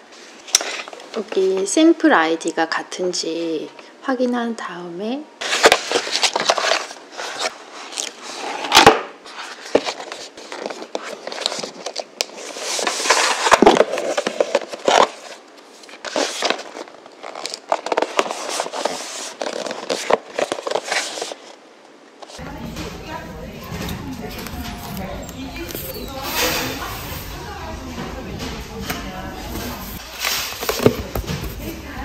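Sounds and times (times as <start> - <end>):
cardboard box rustling: 5.4 - 21.6, 29.5 - 32.0
paper envelope crinkling: 5.4 - 21.6, 23.1 - 27.1.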